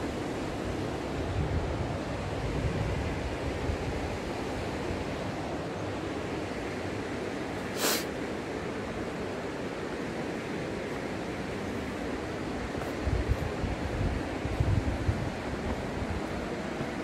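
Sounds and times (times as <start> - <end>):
wind buffeting microphone: 1.2 - 4.3, 12.7 - 17.0.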